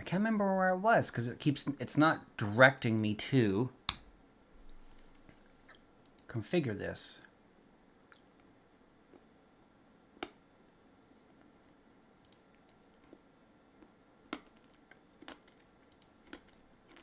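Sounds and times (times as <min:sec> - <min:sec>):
computer mouse clicks: 0:12.2 - 0:12.4.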